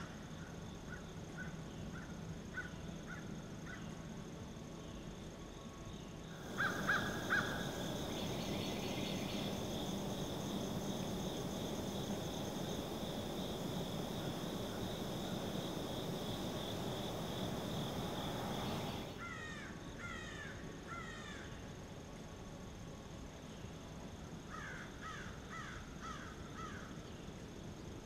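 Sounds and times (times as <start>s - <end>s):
crickets droning: 0.0s - 28.0s
crow cawing: 6.4s - 9.8s.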